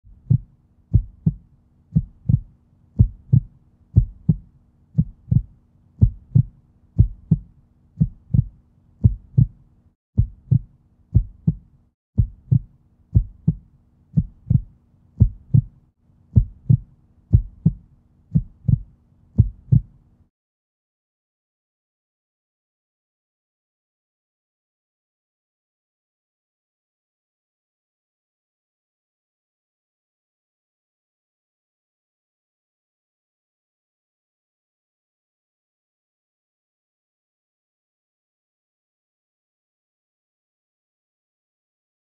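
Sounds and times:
heartbeat thumps: 0.1s - 9.6s, 10.2s - 20.0s.

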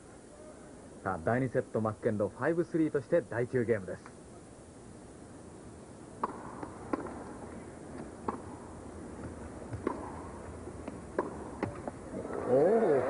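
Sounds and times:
tennis ball struck by racket: 6.2s - 12.6s
crowd murmur: 12.0s - 13.0s.

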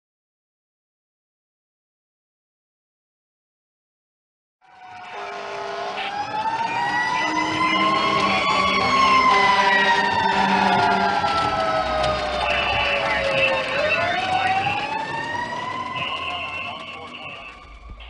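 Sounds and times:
fire engine siren wailing: 4.6s - 18.0s.

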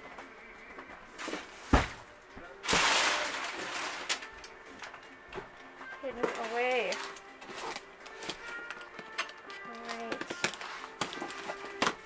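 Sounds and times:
box thump: 1.7s - 3.4s
packing paper rustling and crumpling: 2.6s - 4.4s, 6.1s - 12.0s.

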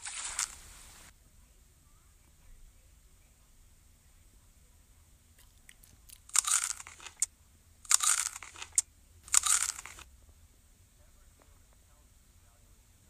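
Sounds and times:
loud crunching noises: 0.0s - 0.6s, 5.4s - 7.3s, 7.9s - 10.1s
sharp clicks: 5.4s - 7.3s, 7.9s - 10.1s.

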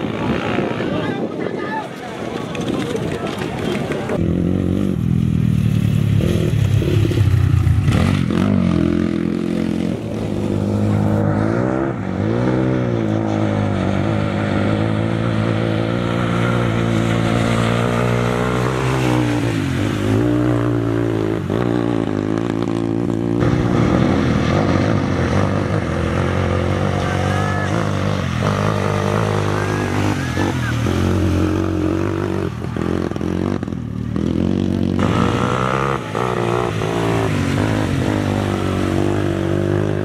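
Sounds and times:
dirt bike engine revving: 3.6s - 40.0s
water spray rushing: 35.0s - 39.7s.

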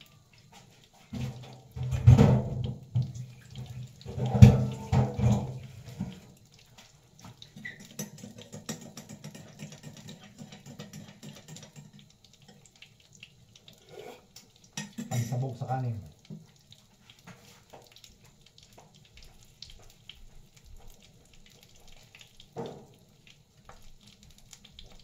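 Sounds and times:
water running in a sink: 0.0s - 25.0s.

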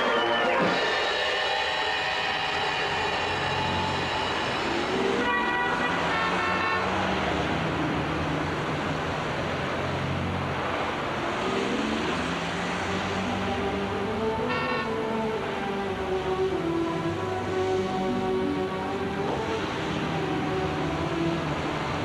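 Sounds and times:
traffic rumble: 0.6s - 22.0s
car horns honking: 5.0s - 7.2s, 14.4s - 15.3s.

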